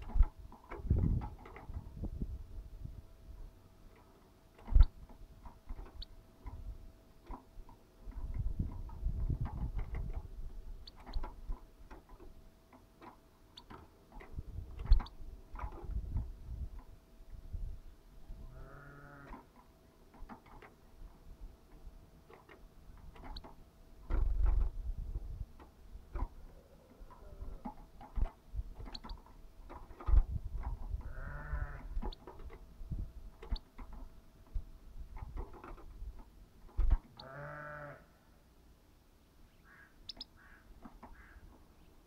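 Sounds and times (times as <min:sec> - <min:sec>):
sharp clicks and knocks: 0:00.0 - 0:01.9, 0:03.9 - 0:06.6, 0:07.2 - 0:16.9, 0:19.3 - 0:20.9, 0:21.7 - 0:26.4, 0:27.1 - 0:31.0, 0:31.9 - 0:32.7, 0:33.3 - 0:37.2, 0:40.1 - 0:41.7
farm animal bleating: 0:18.5 - 0:19.4, 0:27.2 - 0:27.6, 0:31.0 - 0:32.0, 0:37.2 - 0:38.2.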